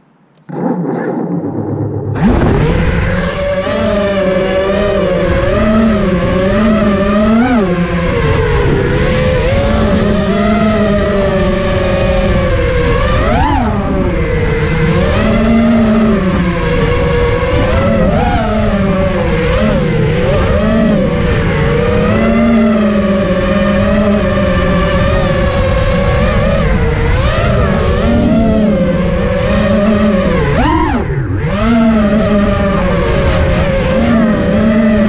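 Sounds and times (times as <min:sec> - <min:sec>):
drone propellers whining: 0:00.0 - 0:35.0
rushing air rumble: 0:00.5 - 0:05.5.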